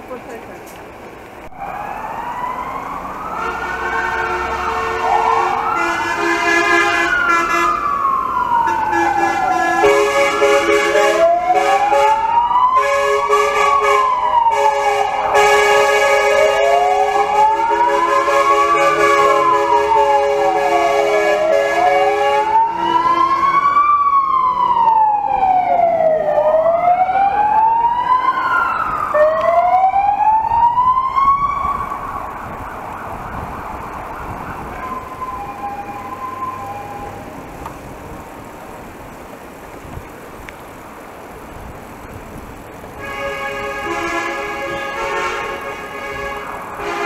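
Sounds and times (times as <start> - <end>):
wind and tyre noise: 0.0 - 47.0
fire engine wail siren: 1.5 - 38.5, 43.0 - 47.0
horn blast: 3.2 - 7.8, 8.7 - 12.2, 12.8 - 23.5, 43.0 - 47.0.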